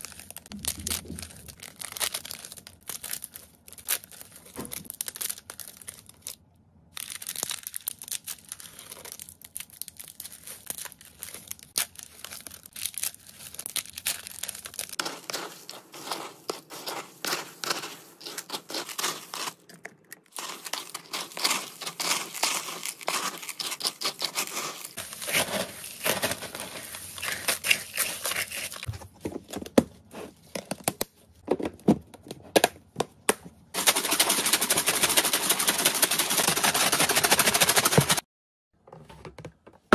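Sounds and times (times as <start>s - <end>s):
plastic bag crinkling: 0.0s - 19.7s, 20.3s - 28.9s
pellets rattling: 11.2s - 19.6s, 20.3s - 28.9s, 33.8s - 38.2s
bin of food shaken: 33.8s - 38.2s.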